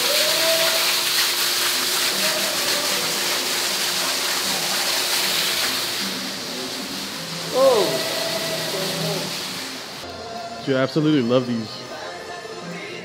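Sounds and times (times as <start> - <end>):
water splashing into basin: 0.0 - 10.0.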